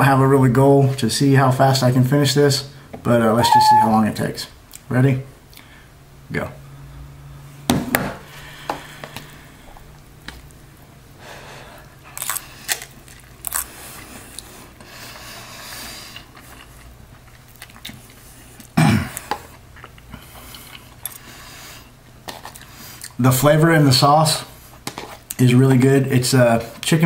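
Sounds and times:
person chewing and slurping noodles: 0:12.1 - 0:23.2.

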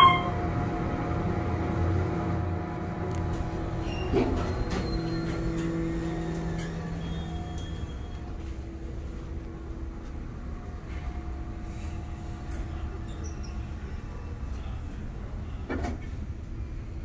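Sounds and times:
elevator hum: 0:00.0 - 0:17.0
elevator car stopping thump: 0:02.9 - 0:11.4.

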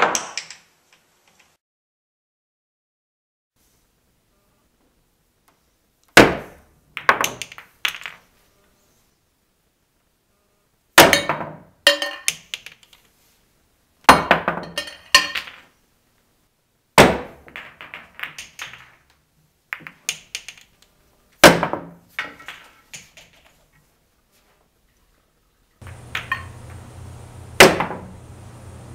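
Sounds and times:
pool balls clacking: 0:06.2 - 0:08.3, 0:11.0 - 0:13.0, 0:14.2 - 0:15.7, 0:17.0 - 0:20.8, 0:21.5 - 0:23.6, 0:25.8 - 0:28.9
cue striking pool ball: 0:25.8 - 0:28.2.

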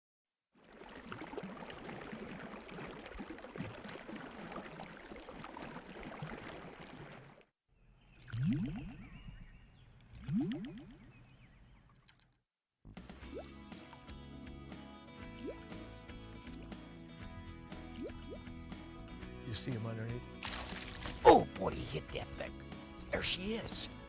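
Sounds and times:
water gurgling and splashing: 0:00.5 - 0:07.5, 0:08.2 - 0:09.4, 0:10.0 - 0:11.1, 0:20.4 - 0:21.5
rising bloops: 0:10.1 - 0:11.1.

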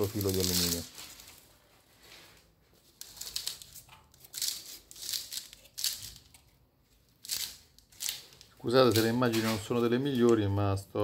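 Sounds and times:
hand scraping tiles: 0:02.9 - 0:06.4, 0:07.1 - 0:09.8.

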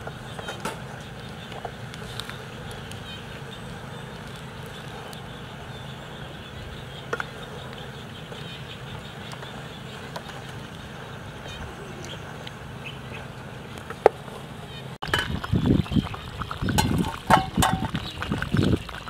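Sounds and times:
outdoor hum: 0:00.0 - 0:19.0
stick knocking against metal pot: 0:16.7 - 0:18.0.

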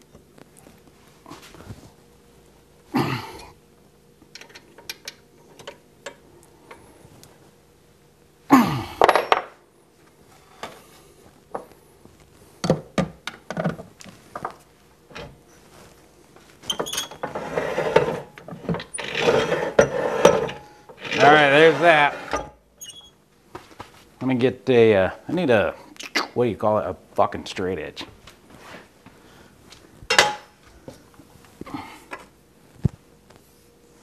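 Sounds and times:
metal scraping on workbench: 0:16.9 - 0:18.3, 0:18.9 - 0:22.6
lathe tailstock sliding scrape: 0:17.2 - 0:18.3, 0:19.0 - 0:22.5
metal tools clinking and knocking: 0:30.1 - 0:30.4.

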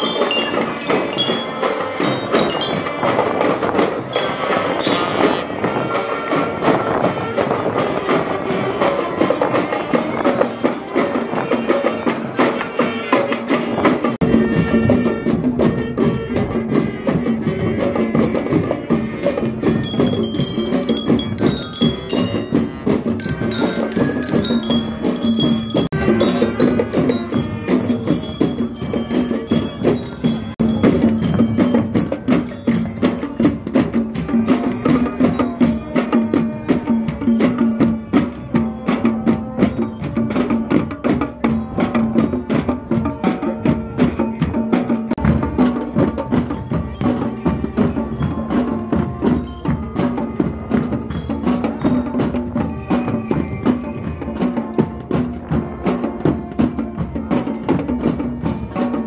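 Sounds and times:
bell lyres melody: 0:00.0 - 0:06.3, 0:17.6 - 0:59.0
marching band playing: 0:00.0 - 0:59.0
snare and bass drums: 0:00.0 - 0:59.0.

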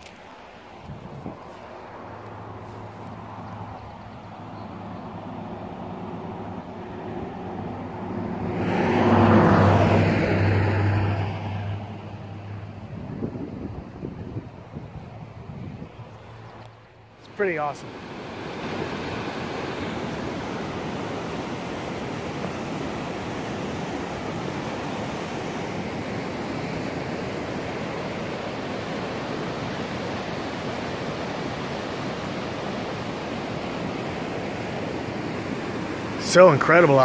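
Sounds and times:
river rapids rushing: 0:17.2 - 0:37.0.

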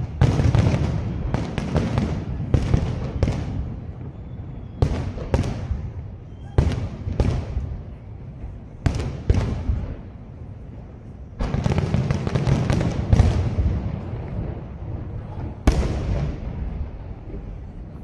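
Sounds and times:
firework shells exploding: 0:00.0 - 0:07.8
firework crackling: 0:00.0 - 0:18.0.

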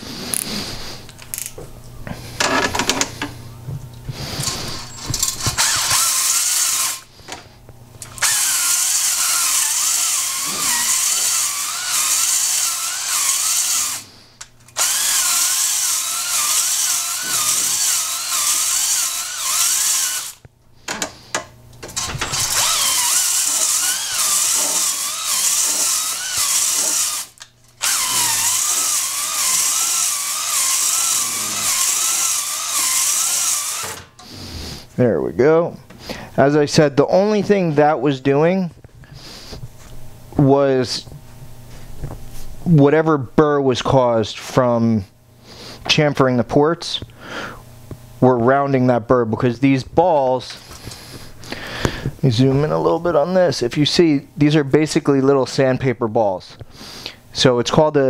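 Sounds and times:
hone scrubbing cylinder bore: 0:04.1 - 0:34.9
cordless drill whining: 0:04.2 - 0:07.2, 0:08.0 - 0:14.1, 0:14.7 - 0:20.4, 0:21.8 - 0:34.4.

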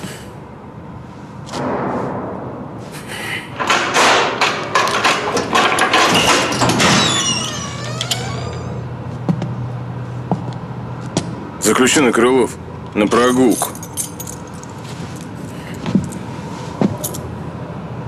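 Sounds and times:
metal door clanks and thuds: 0:03.5 - 0:08.7
hinges creaking squeal: 0:03.6 - 0:09.1.

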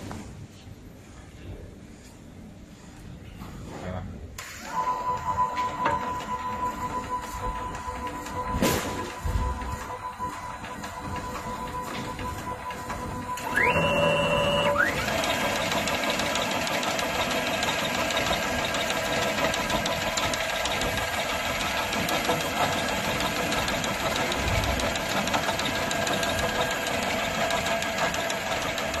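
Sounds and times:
machine starting whine: 0:04.4 - 0:29.0
tape wrapping machine whirring: 0:04.4 - 0:29.0
fine rapid ticking: 0:14.9 - 0:29.0.

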